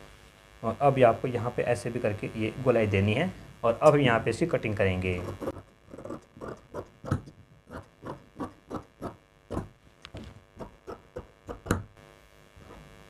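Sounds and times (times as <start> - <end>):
shears snipping through fabric: 5.2 - 11.8.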